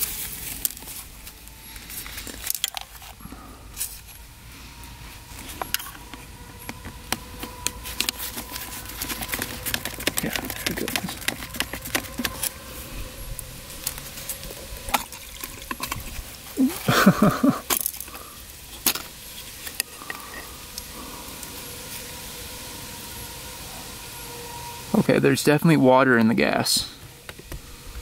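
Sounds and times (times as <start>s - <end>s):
fuel draining: 1.8s - 24.3s
screwdriver and metal parts clattering: 2.1s - 3.2s, 5.5s - 6.8s, 17.4s - 20.4s.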